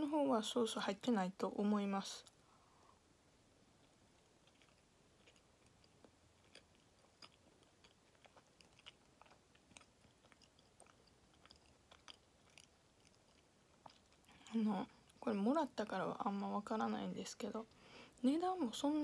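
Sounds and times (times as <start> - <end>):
close-up chewing mouth clicks: 3.8 - 15.2.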